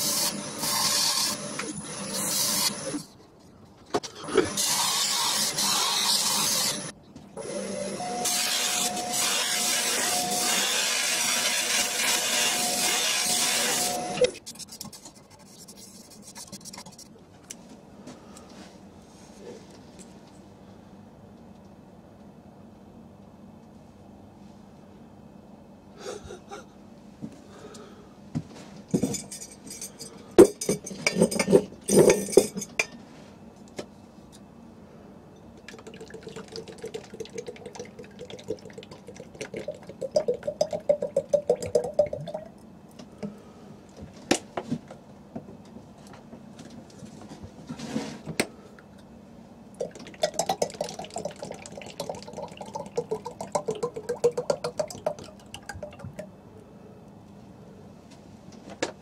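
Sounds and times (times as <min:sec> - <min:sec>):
oil glugging into glass jar: 0:35.6 - 0:42.5, 0:49.8 - 0:56.3.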